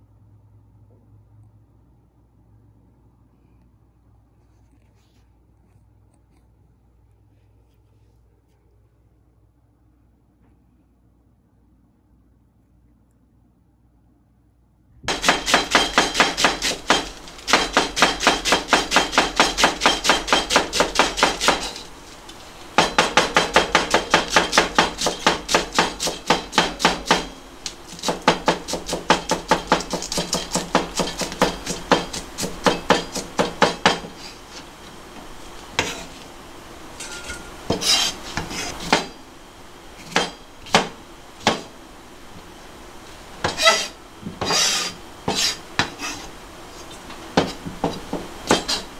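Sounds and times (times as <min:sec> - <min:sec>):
knife chopping on plastic board: 0:15.1 - 0:34.6, 0:37.7 - 0:39.2, 0:40.0 - 0:41.7, 0:43.4 - 0:46.2.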